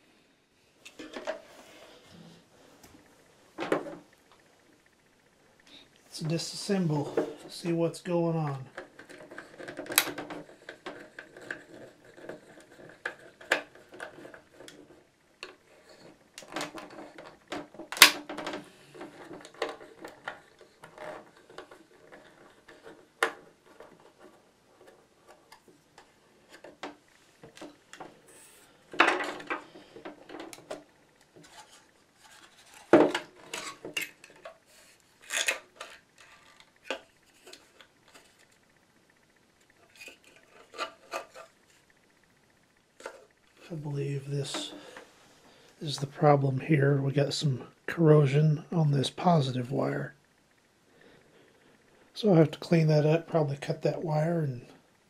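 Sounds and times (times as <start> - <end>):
plastic clicks and scrapes: 8.7 - 38.6.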